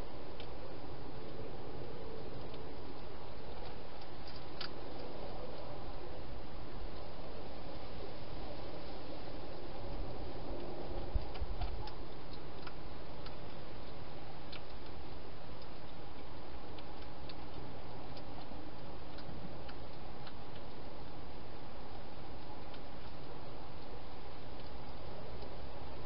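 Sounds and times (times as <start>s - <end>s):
steady hiss: 0.0s - 26.0s
hedgehog chewing clicks: 1.2s - 5.7s, 9.8s - 26.0s.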